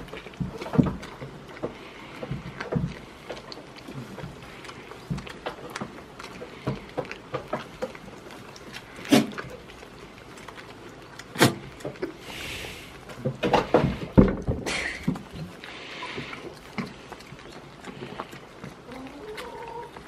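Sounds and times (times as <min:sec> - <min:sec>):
knocks and thumps: 0:13.2 - 0:15.3.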